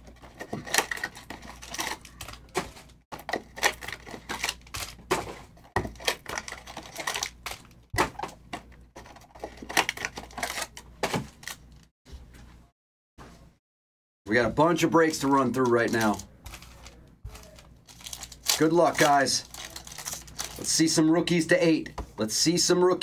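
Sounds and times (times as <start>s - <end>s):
plastic wrapping crinkling: 0.1s - 8.3s, 15.4s - 20.7s.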